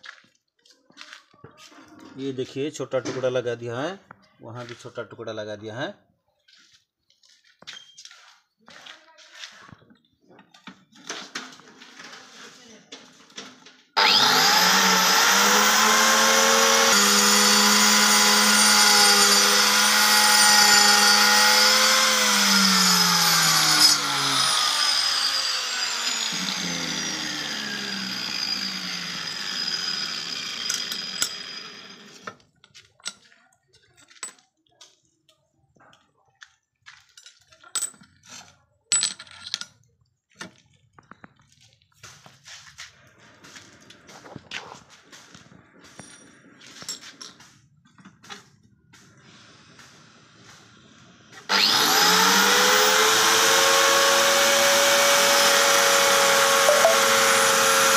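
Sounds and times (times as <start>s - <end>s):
electric stone cutter whining: 14.0s - 32.4s, 51.3s - 57.9s
knocks and clicks of stone and tools: 30.6s - 31.6s, 32.2s - 35.0s, 36.9s - 41.4s, 45.8s - 48.5s.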